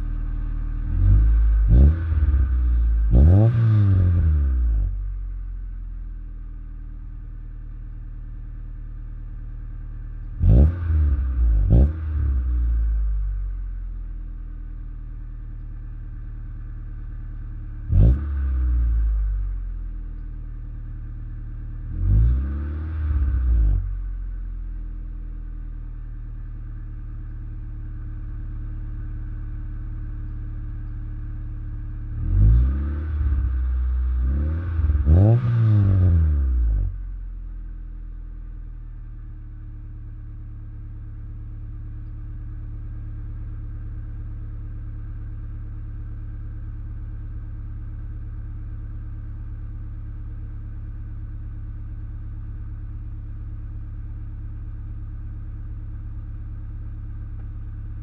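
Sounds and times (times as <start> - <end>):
car engine idling and revving: 0.0 - 58.0.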